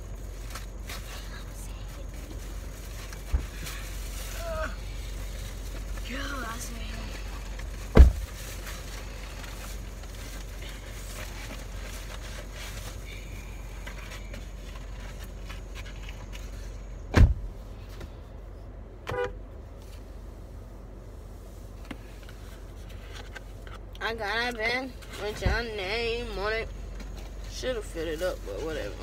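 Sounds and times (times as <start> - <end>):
car engine idling: 0.0 - 29.0
loud thumps: 7.9 - 8.3.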